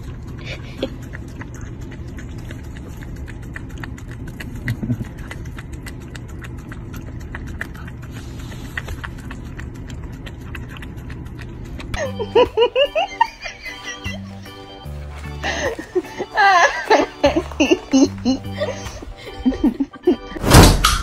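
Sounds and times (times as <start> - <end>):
dog licking wet clicks: 0.0 - 12.0.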